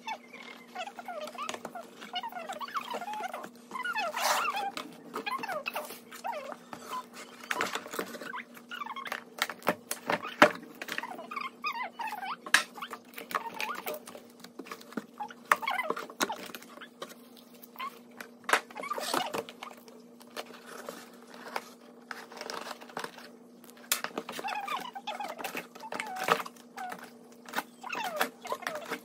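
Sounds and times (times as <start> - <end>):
short squeaky scrapes: 0.0 - 9.2
cardboard rustling and scraping: 0.6 - 8.5, 18.7 - 29.0.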